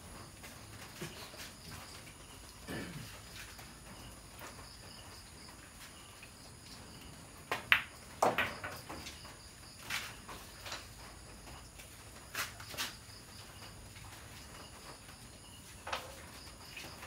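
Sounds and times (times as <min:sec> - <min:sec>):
crickets chirping: 0:00.0 - 0:17.0
pool balls clacking: 0:07.5 - 0:09.2.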